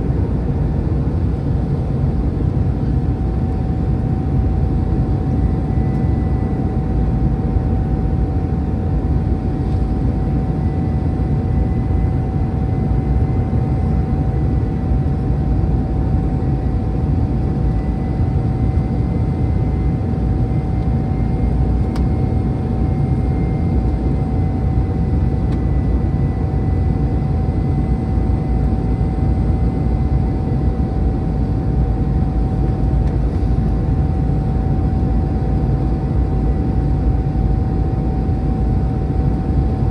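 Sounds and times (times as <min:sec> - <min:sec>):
aircraft cabin engine rumble: 0:00.0 - 0:39.9
constant hum: 0:00.0 - 0:39.9.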